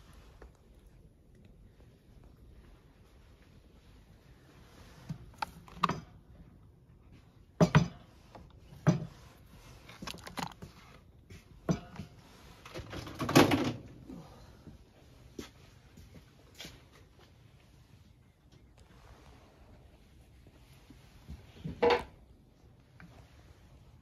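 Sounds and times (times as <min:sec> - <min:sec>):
objects knocking and clattering: 0:05.1 - 0:06.4, 0:07.5 - 0:13.9, 0:21.6 - 0:22.2.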